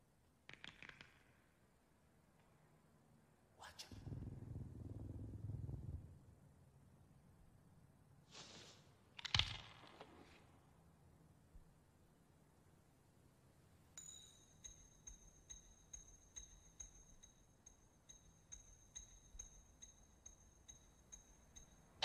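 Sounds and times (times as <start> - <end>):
faint metallic pings: 13.9 - 22.0.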